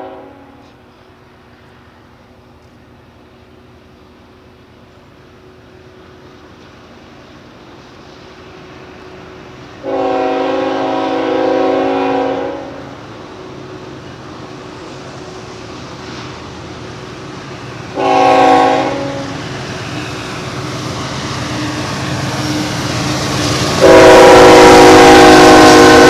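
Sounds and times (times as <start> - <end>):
train air horn blast: 0.0 - 0.8, 9.8 - 13.0, 17.9 - 19.4, 23.8 - 26.0
freight train rumbling: 0.0 - 26.0.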